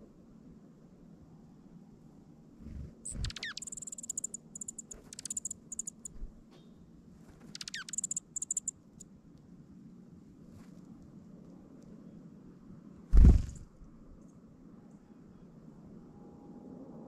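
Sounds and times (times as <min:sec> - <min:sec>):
songbird calling: 0:03.0 - 0:06.8, 0:07.4 - 0:08.7.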